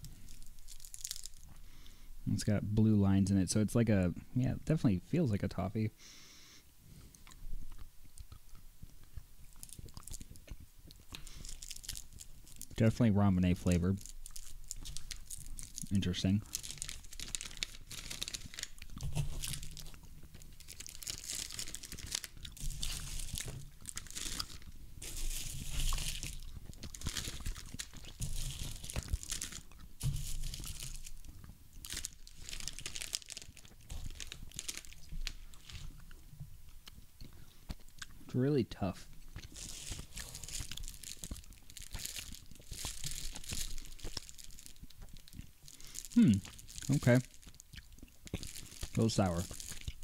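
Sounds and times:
plastic packaging crinkling: 0.0 - 1.7, 9.6 - 36.2, 39.2 - 50.0.

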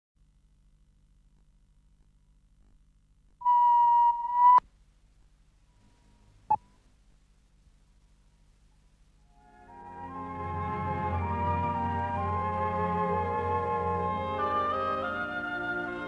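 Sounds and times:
faint electrical hum: 0.2 - 10.1
electronic beep: 3.4 - 4.6
short blip: 3.4 - 4.6.

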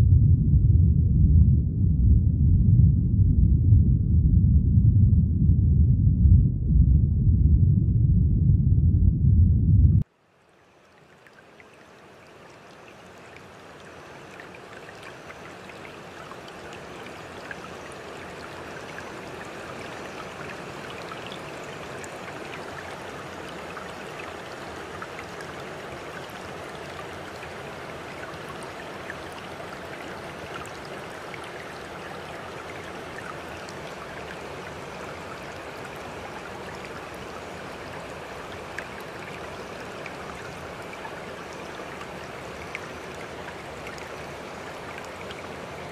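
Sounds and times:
stream water rushing: 10.3 - 45.9.

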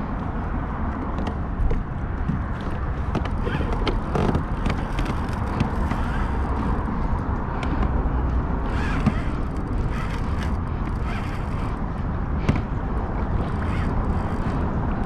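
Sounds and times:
wind on microphone: 0.0 - 15.0
light clicks and knocks: 1.0 - 6.4
water moving around kayak hull: 2.2 - 7.2.

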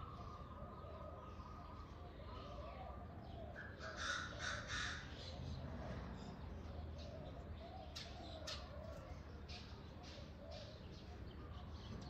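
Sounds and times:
birdsong: 0.0 - 12.0
crow cawing: 3.8 - 5.1.

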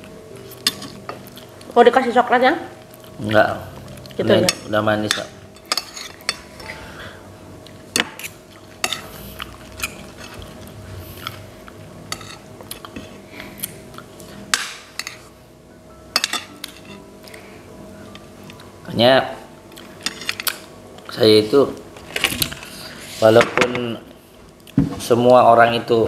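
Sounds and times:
cutlery clinking on ceramic plates: 16.1 - 17.0.

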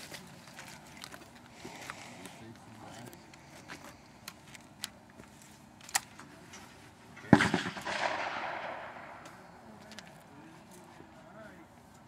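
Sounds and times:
shotgun shot echoing: 7.3 - 9.5.

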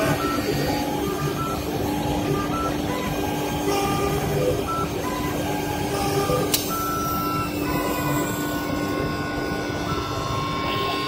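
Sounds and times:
sharp click: 6.5 - 6.8.

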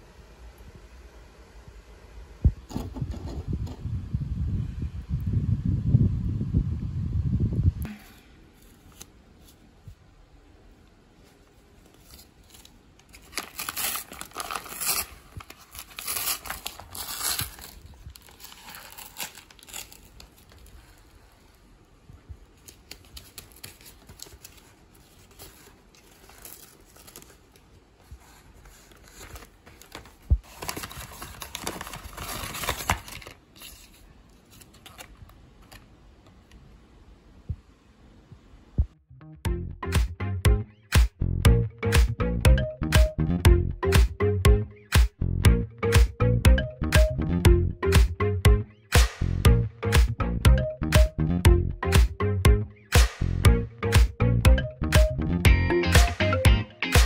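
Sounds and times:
light paper rustles: 11.2 - 21.6, 22.5 - 35.8
paper crinkling and tearing: 11.8 - 21.5, 22.6 - 35.8.

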